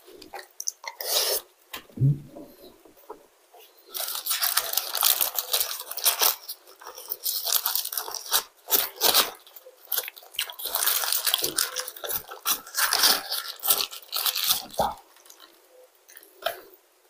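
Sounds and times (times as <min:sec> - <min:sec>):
paper wrapper crinkling and tearing: 0:03.8 - 0:15.6.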